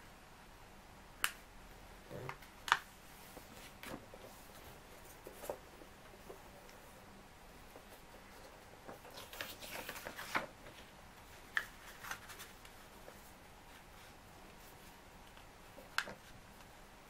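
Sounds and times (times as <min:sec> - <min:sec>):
paper rustling and crackling: 0:03.2 - 0:06.8, 0:07.7 - 0:15.0.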